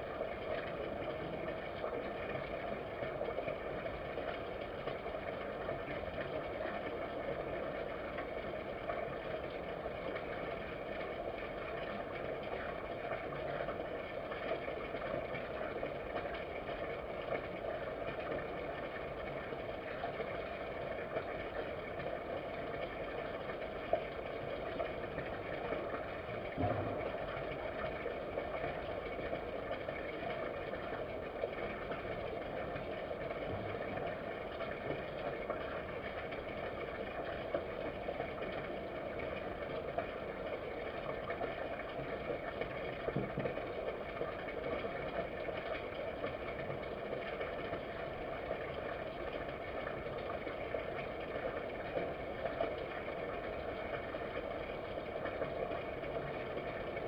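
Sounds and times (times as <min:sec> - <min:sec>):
background hum and hiss: 0:00.0 - 0:57.0
short low thump: 0:26.6 - 0:27.2.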